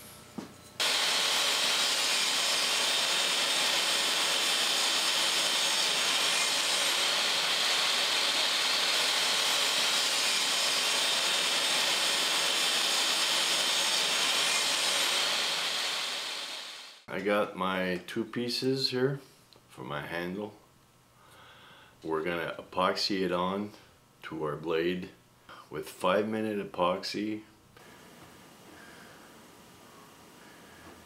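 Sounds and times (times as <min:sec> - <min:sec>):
table saw cutting wood: 0:00.8 - 0:17.0.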